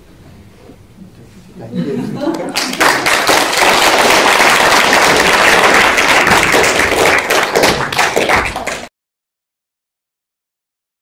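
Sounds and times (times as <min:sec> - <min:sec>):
congregation applauding: 0:02.3 - 0:08.9.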